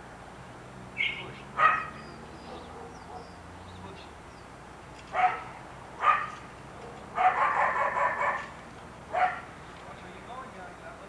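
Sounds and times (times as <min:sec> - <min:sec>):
dog barking: 0:01.0 - 0:03.4, 0:05.1 - 0:09.5.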